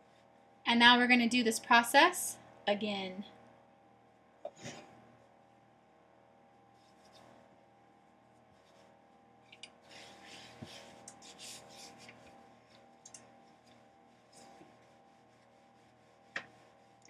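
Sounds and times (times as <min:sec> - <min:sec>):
faint steady hum: 0:00.0 - 0:17.0
rolling pin scraping dough: 0:09.9 - 0:17.0.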